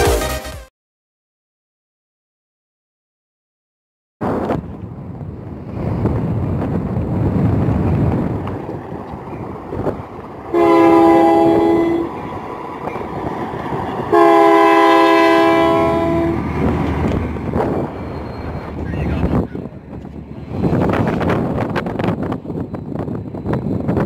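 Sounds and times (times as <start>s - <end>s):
diesel engines rumbling: 4.2s - 24.0s
locomotive air horn blasts: 10.5s - 12.1s, 14.1s - 16.4s.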